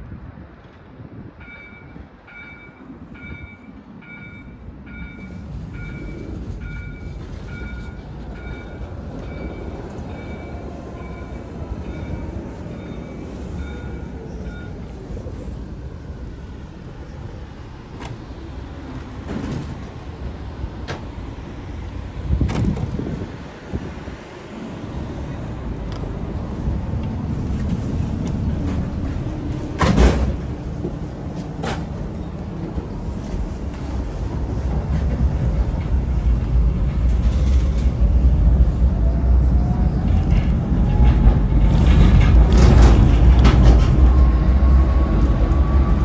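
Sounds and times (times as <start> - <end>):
tram wheels and motors rumbling: 0.0 - 46.0.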